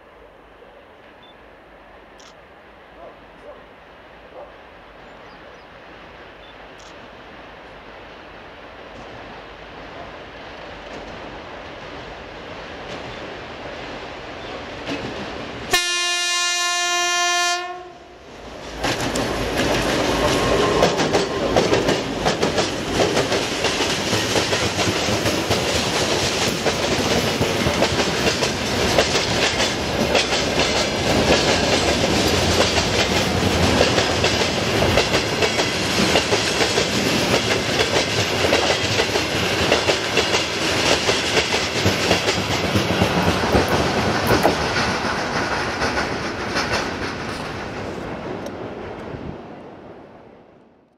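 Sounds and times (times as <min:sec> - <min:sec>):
diesel locomotive passing: 0:00.0 - 0:50.6
locomotive air horn blast: 0:15.7 - 0:18.1
wagon wheels clacking over rail joints: 0:18.8 - 0:47.9.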